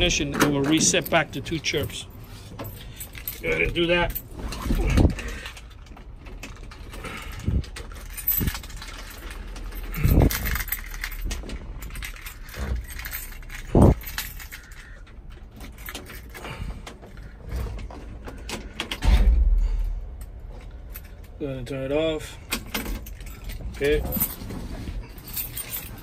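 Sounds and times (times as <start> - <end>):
key ring jangling and clicking: 7.4 - 14.9, 25.2 - 26.0.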